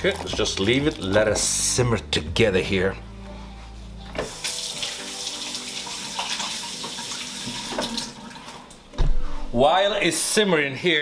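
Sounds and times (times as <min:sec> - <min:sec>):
tap water running into sink: 0:04.2 - 0:08.5.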